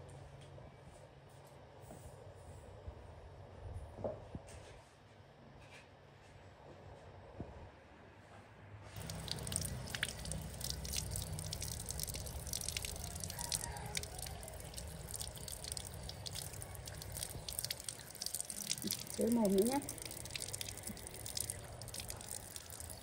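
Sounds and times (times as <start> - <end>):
hands rinsed under water: 9.0 - 23.0
water running from a tap: 9.0 - 23.0.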